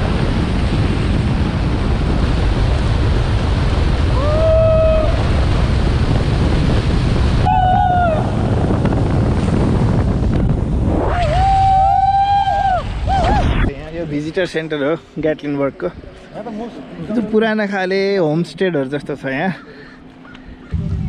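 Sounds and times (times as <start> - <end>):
wind roaring over microphone: 0.0 - 14.5, 20.6 - 21.0.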